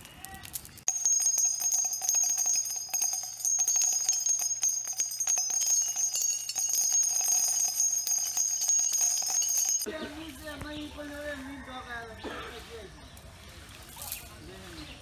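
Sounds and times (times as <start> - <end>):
bright ringing bells: 0.9 - 9.9
high ringing tones: 0.9 - 9.9.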